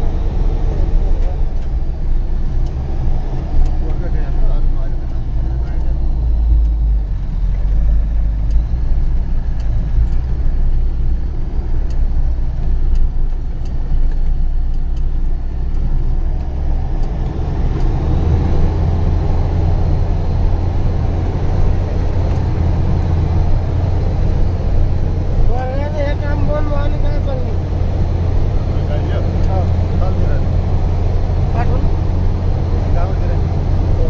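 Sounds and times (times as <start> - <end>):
truck engine under load: 0.0 - 34.0
faint ticks: 8.4 - 18.0.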